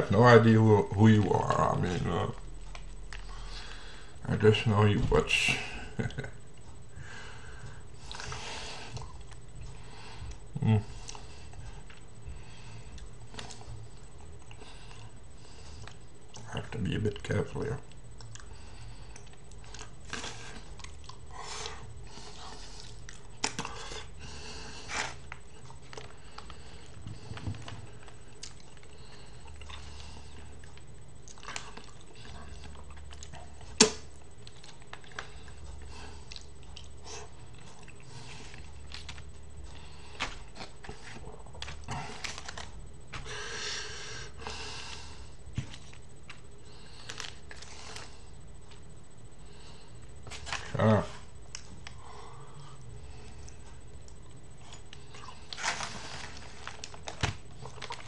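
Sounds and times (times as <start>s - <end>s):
person chewing: 1.9s - 4.2s, 5.9s - 17.2s, 17.8s - 48.9s, 49.5s - 58.0s.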